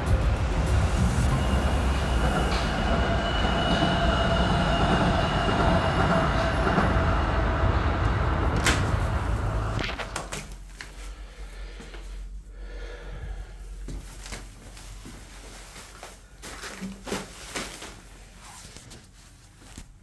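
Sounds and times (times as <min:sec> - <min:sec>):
monorail train rumbling: 0:00.0 - 0:10.2
thin high whine: 0:00.0 - 0:10.2.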